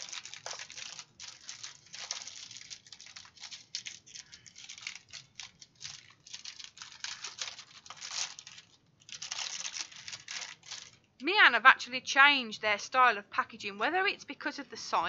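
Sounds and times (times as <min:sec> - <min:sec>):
plastic packaging crinkling: 0:00.0 - 0:11.2.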